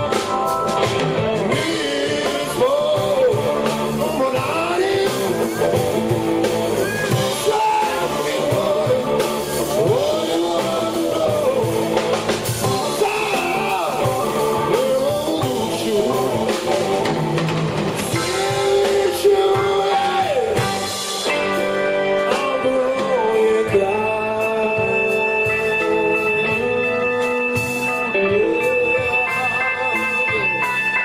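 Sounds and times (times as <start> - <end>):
bass guitar: 0.0 - 31.0
drum kit: 0.0 - 31.0
electric guitar: 0.0 - 31.0
male voice singing: 0.0 - 31.0
organ: 0.0 - 31.0.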